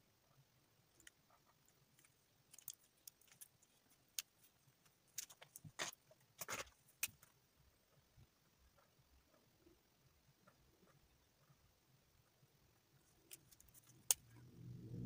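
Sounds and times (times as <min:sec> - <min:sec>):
markers clicking and tapping: 0:00.9 - 0:07.3.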